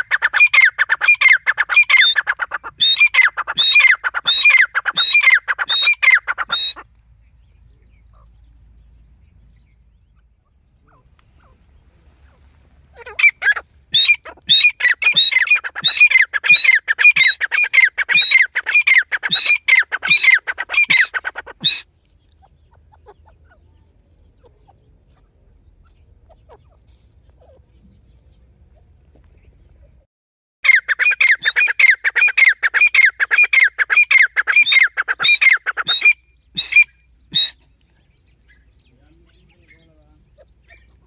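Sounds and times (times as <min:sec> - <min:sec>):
francolin harsh calls: 0:00.0 - 0:06.8, 0:10.0 - 0:21.9.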